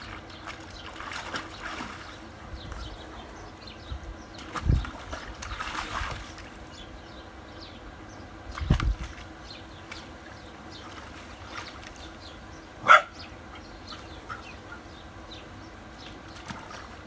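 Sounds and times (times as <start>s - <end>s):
puppy barking: 12.8s - 13.3s.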